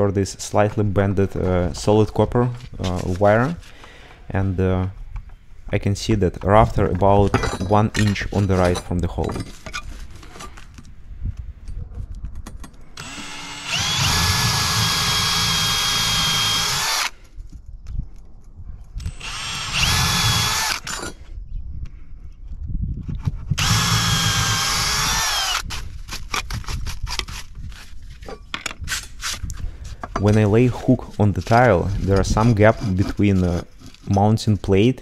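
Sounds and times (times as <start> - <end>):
drill motor whine: 13.0 - 17.1, 19.0 - 21.1, 23.6 - 25.6
cordless drill boring into wood: 13.0 - 17.2, 19.0 - 21.2, 23.6 - 25.7.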